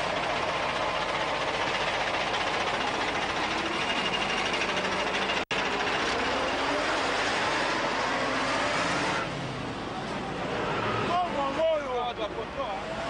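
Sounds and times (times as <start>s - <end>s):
truck engine running: 0.0s - 7.4s.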